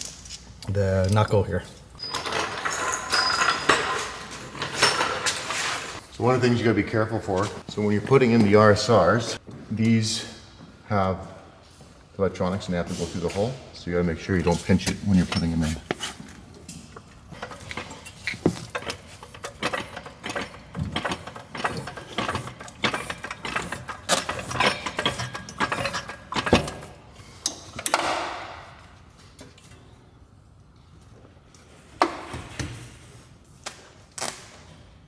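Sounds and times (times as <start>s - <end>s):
metallic clinks and knocks: 0.9s - 6.0s, 17.3s - 27.0s.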